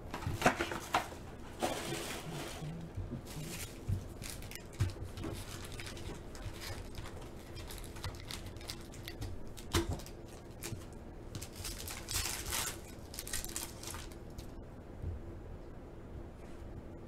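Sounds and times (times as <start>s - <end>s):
foil wrapper crinkling: 3.2s - 14.6s
foil tearing: 3.3s - 14.5s.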